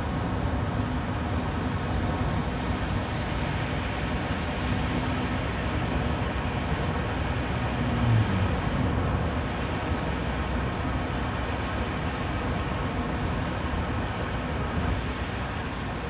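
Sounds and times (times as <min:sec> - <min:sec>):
low engine hum: 0:00.0 - 0:16.0
tyres hissing on wet road: 0:02.4 - 0:16.0.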